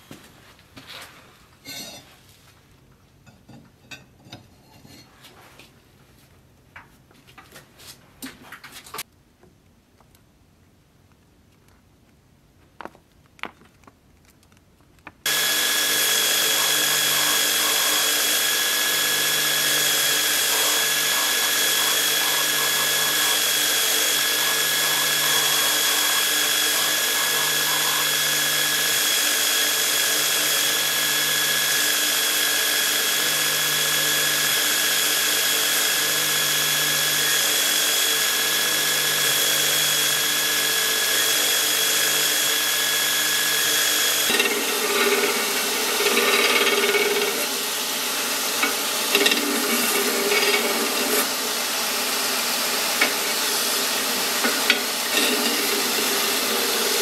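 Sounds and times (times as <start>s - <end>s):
blade pressed on grinding belt: 15.3s - 51.4s, 52.0s - 57.0s
belt grinder whining: 15.3s - 57.0s.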